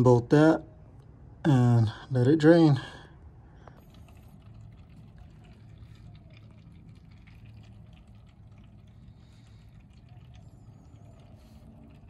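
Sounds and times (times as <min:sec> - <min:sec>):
oil pouring into pan: 0:03.8 - 0:12.0.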